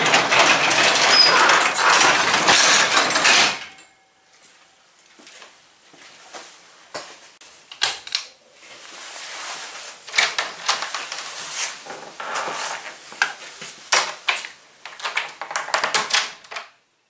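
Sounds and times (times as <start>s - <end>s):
rustling: 8.5s - 14.3s.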